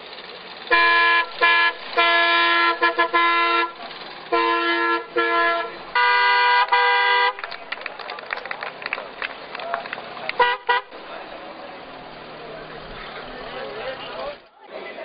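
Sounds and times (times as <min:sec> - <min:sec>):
old car horns honking: 0:00.2 - 0:07.6, 0:10.3 - 0:14.4.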